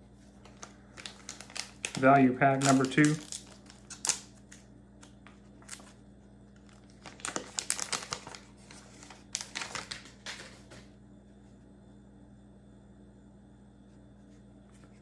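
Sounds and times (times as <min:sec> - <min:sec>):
plastic wrapper crinkling: 0:00.4 - 0:10.8.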